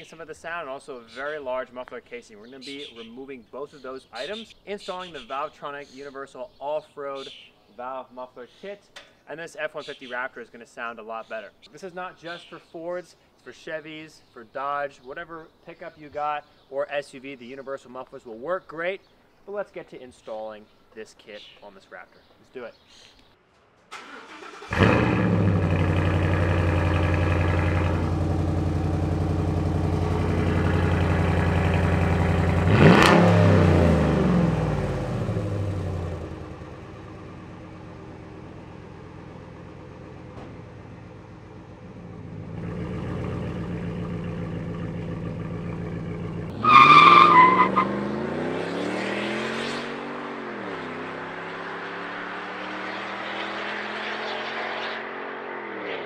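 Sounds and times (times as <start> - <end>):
truck engine idling: 24.0 - 32.8, 35.4 - 46.5
truck driving past: 24.2 - 46.5.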